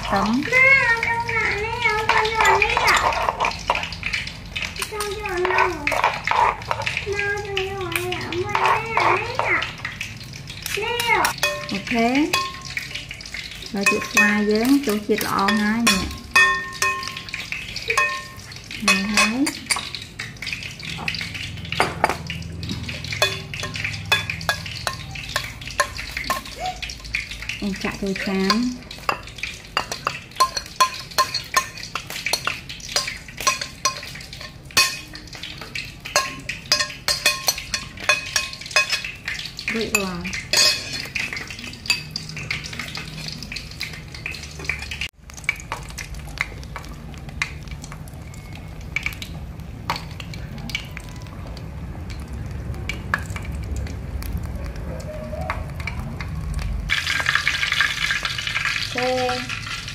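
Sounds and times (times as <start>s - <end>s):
food frying in a pan: 0.0s - 59.9s
metal utensil scraping a pan: 1.4s - 7.2s, 8.0s - 9.7s, 10.6s - 45.1s.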